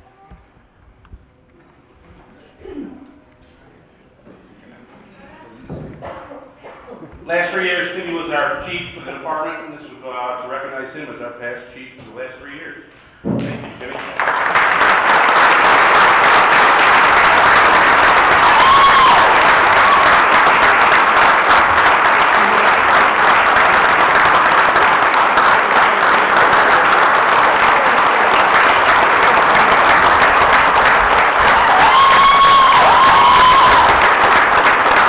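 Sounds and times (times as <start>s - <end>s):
audience applauding: 13.5s - 35.0s.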